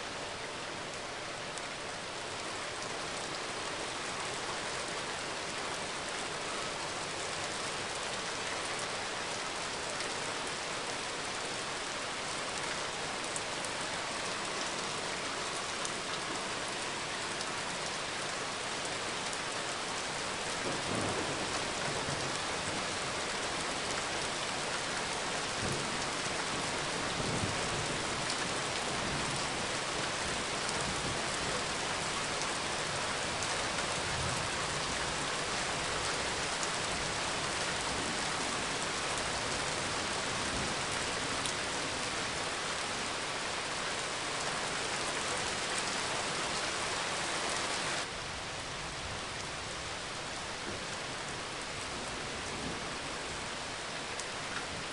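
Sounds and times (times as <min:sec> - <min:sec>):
steady rain falling: 0:00.0 - 0:54.9.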